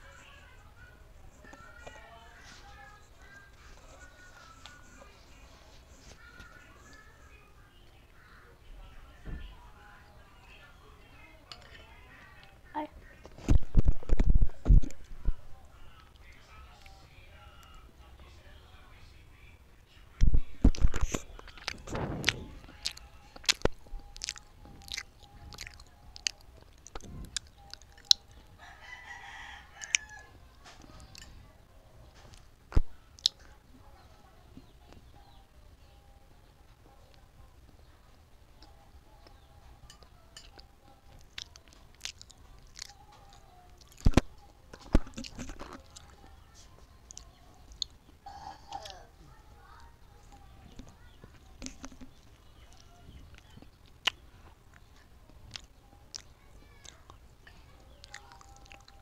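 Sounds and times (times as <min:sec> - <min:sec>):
mouth clicks and smacks: 0:20.6 - 0:28.2, 0:41.2 - 0:46.2, 0:51.6 - 0:57.2, 0:58.0 - 0:59.0
crunching while eating: 0:20.7 - 0:31.3, 0:38.6 - 0:46.4, 0:50.8 - 0:59.0.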